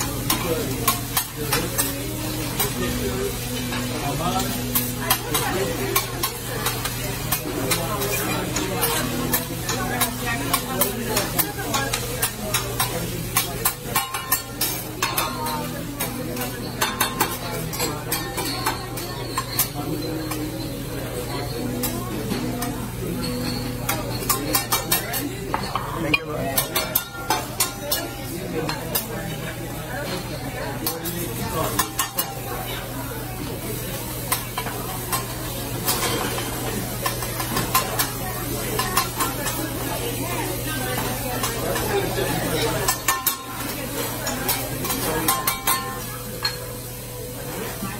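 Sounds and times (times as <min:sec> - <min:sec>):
rice sizzling on griddle: 0:00.0 - 0:47.9
metal spatulas scraping and clacking: 0:04.4 - 0:29.4, 0:34.3 - 0:39.9, 0:40.5 - 0:46.7.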